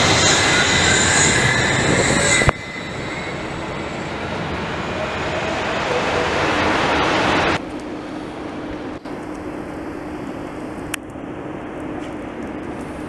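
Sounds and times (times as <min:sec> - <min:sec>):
high-pitched whining tones: 0:00.0 - 0:07.6
suspended railway car rumbling: 0:00.0 - 0:07.6.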